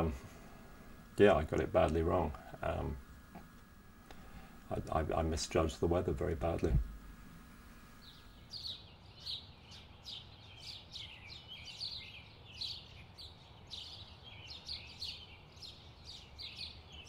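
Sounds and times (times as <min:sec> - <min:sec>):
faint background noise: 0:00.0 - 0:17.0
small songbirds chirping: 0:07.9 - 0:17.0.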